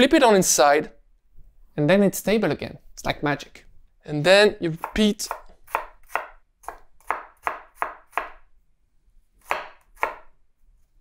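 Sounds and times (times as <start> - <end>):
knife chopping onion on board: 4.7 - 8.4, 9.4 - 10.4.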